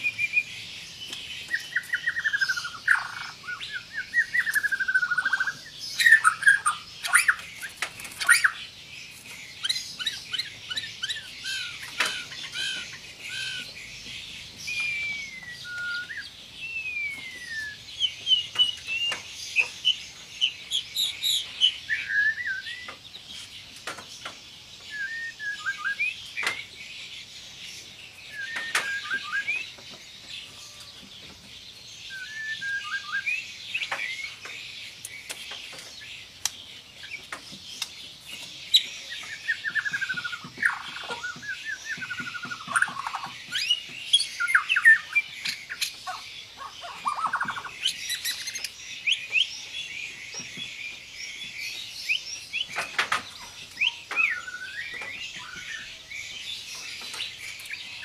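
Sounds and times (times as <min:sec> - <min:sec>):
bird singing whistled phrases: 0:00.0 - 0:00.5, 0:01.5 - 0:08.6, 0:14.7 - 0:19.7, 0:21.8 - 0:23.0, 0:24.9 - 0:26.6, 0:28.3 - 0:29.8, 0:32.1 - 0:34.4, 0:53.8 - 0:56.0.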